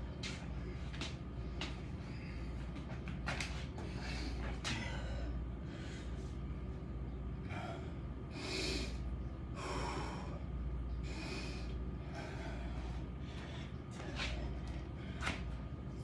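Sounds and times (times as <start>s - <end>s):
man breathing hard: 1.4s - 2.8s, 3.7s - 6.6s, 7.4s - 15.7s.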